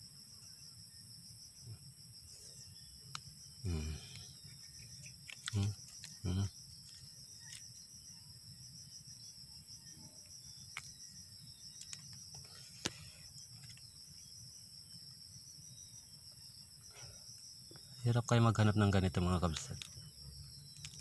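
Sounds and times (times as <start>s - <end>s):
insects trilling: 0.0s - 21.0s
faint clicks of handled soil: 11.8s - 13.9s.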